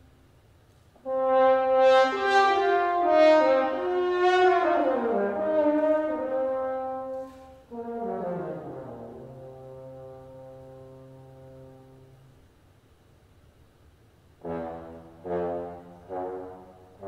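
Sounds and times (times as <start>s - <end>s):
french horn playing: 1.0s - 12.5s, 14.4s - 17.0s.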